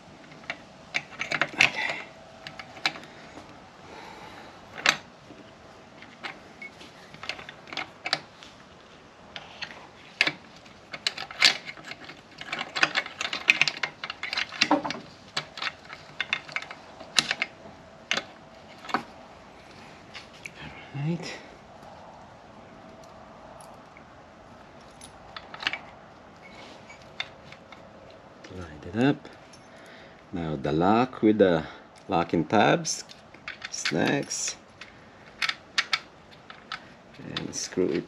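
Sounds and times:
metal transmission parts clicking: 0.1s - 3.5s, 5.9s - 8.4s, 9.3s - 20.6s, 24.6s - 30.0s, 32.8s - 38.0s.

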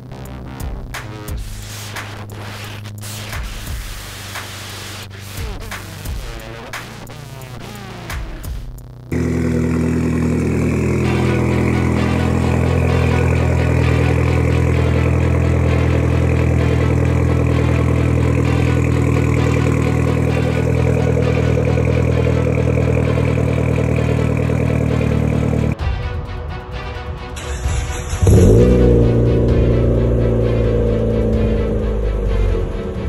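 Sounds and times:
car engine idling: 9.0s - 25.8s, 27.4s - 33.0s.

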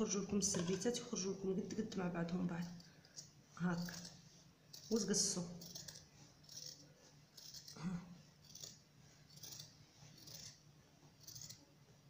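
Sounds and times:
scissors cutting fabric: 2.6s - 11.7s.

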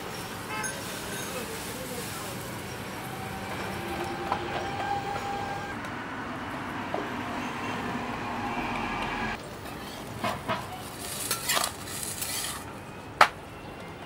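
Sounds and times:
street traffic rumble: 0.0s - 14.0s
metal spatula scraping griddle: 11.0s - 12.7s.

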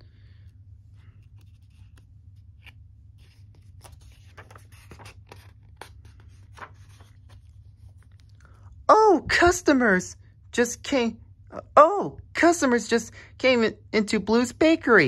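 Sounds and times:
steady low hum: 0.0s - 15.0s
page turning: 0.9s - 8.5s
paper book rustling and tapping: 1.0s - 8.3s.

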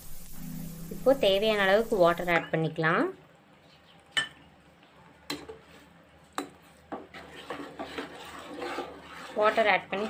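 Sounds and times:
spoon clinking against a pan: 4.2s - 4.5s
spoon stirring through gravy: 5.3s - 10.0s.

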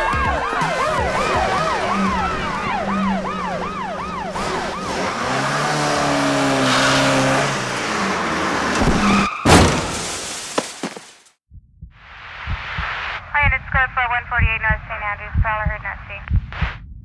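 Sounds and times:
low bass notes: 0.0s - 6.3s
yelping siren: 0.0s - 7.3s.

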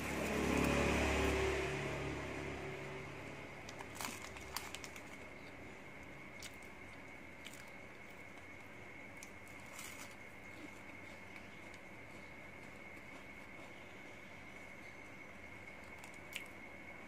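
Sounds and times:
foil wrapper crinkling: 3.7s - 5.3s.

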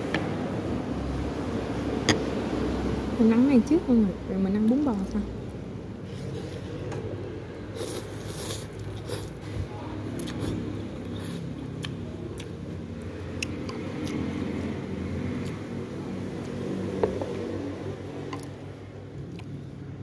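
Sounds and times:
chewing and slurping: 10.2s - 17.5s.

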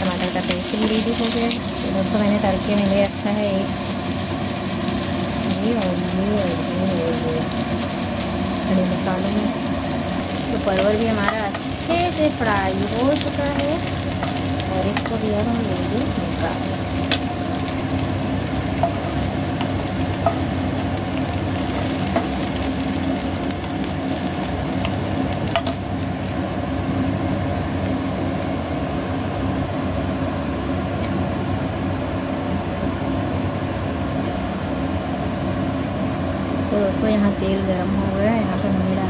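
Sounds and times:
vegetables sizzling in hot oil: 0.0s - 26.4s.

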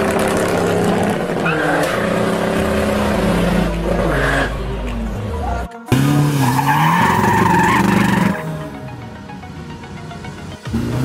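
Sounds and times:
diesel engine revving: 0.0s - 11.0s
tyres squealing: 0.1s - 8.4s.

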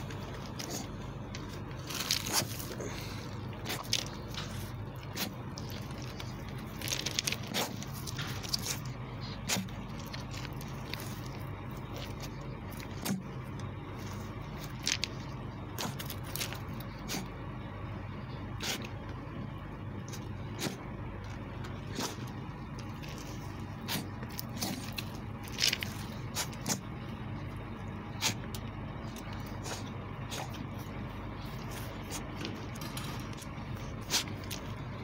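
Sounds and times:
dog scraping dirt and stones: 0.0s - 13.3s, 21.6s - 26.8s
low background hum: 0.0s - 35.0s.

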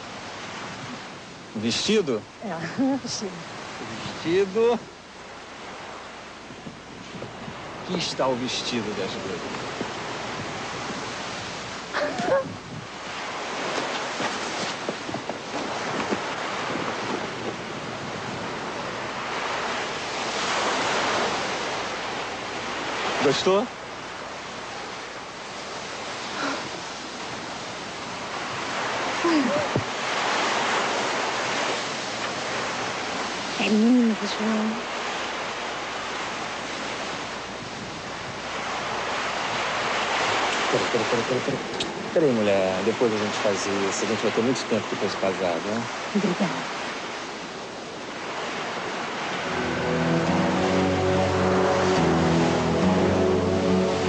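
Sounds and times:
sea surf: 0.0s - 54.0s
wind: 0.0s - 54.0s
wind rushing: 49.0s - 54.0s.

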